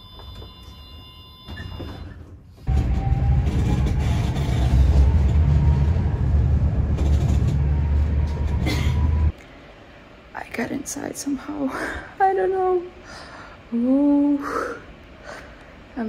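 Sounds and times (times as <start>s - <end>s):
tram rumble: 2.6s - 13.0s.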